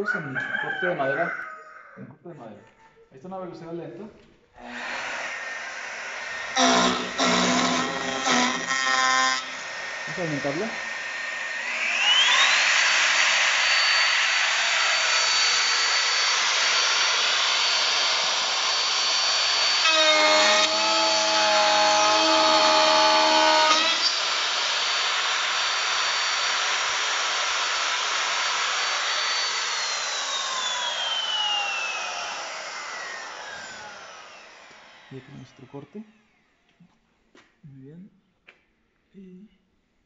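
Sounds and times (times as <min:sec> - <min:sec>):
router whining: 0:04.6 - 0:36.5.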